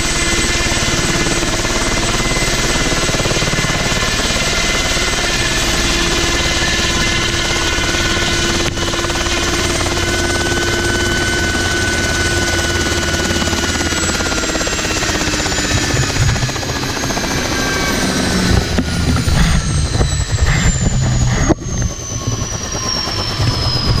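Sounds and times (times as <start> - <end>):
helicopter engine and rotor: 0.0 - 24.0
uneven low rumble: 15.5 - 24.0.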